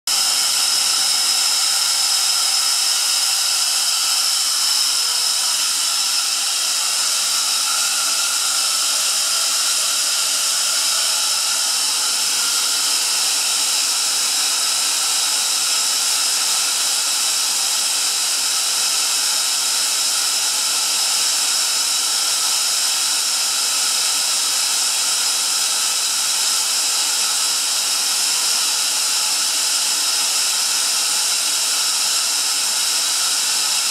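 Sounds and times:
air compressor hissing and whining: 0.1s - 33.9s.

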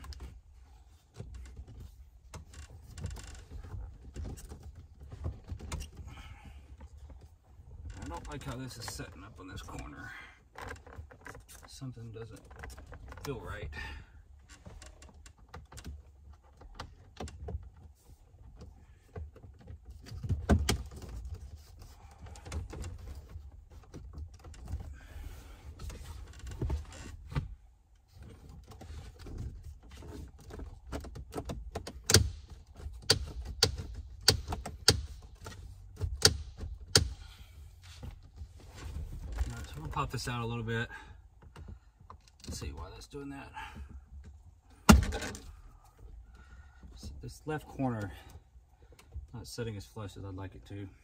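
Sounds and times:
plastic trim clicks and knocks: 30.4s - 37.2s.

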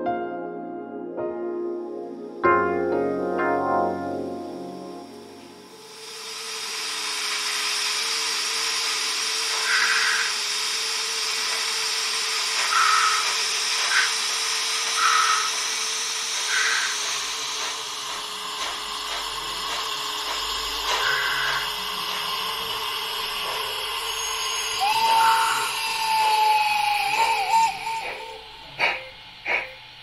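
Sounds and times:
steam hiss: 5.1s - 30.0s
low hum: 16.4s - 30.0s.

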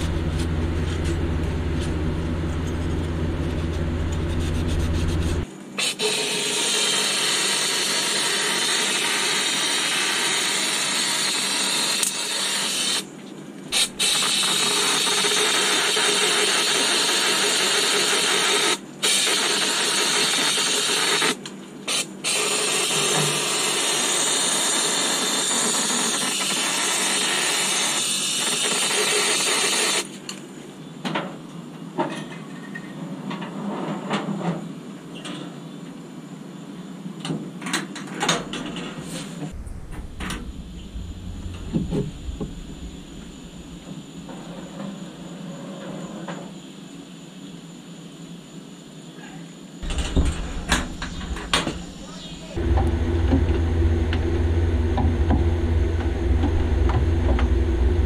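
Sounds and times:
low hum: 0.0s - 5.5s, 39.5s - 44.6s, 49.8s - 58.0s.

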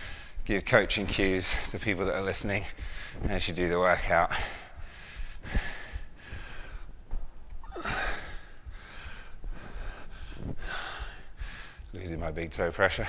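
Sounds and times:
man breathing hard: 0.0s - 0.4s, 4.3s - 11.9s.

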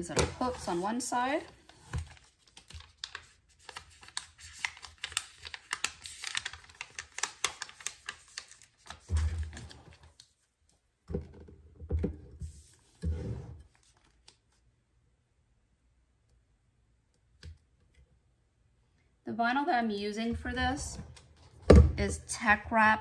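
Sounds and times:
vinyl decal sheet crinkling: 0.4s - 10.5s.

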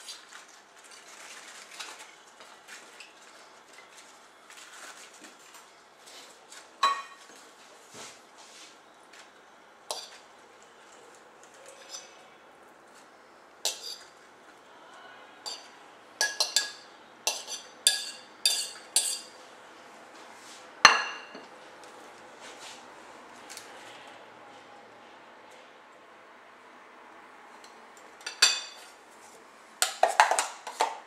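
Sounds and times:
fork clinking on ceramic plate: 6.8s - 7.2s, 15.5s - 19.4s.

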